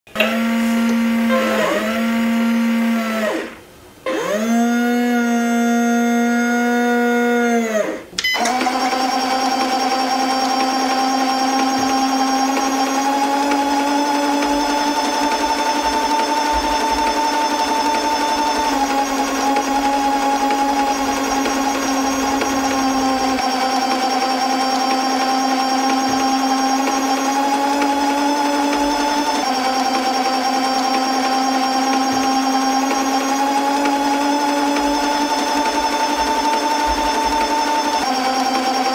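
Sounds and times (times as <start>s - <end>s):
toy truck motor whining: 0.1s - 38.9s.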